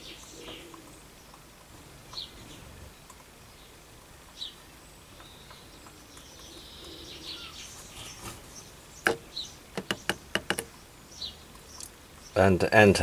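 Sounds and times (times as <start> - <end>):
small birds chirping: 0.0 - 13.0
sharp clicks: 9.8 - 10.8.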